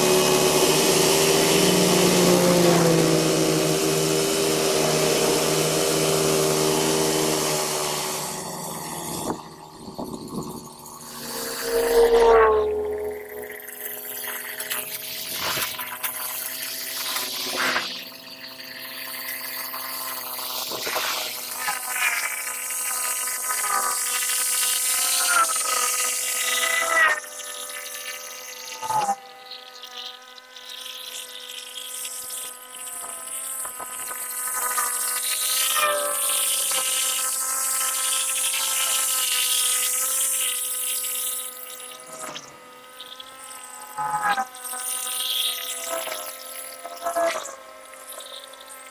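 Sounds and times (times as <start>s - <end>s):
mower engine running: 0.0s - 23.5s
hiss of grass cutting: 0.0s - 48.9s.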